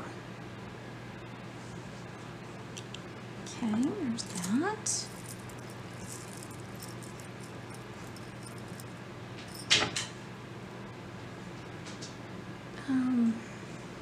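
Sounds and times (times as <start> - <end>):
faint steady hum: 0.0 - 14.0
metal bracelet clinking: 4.2 - 9.8.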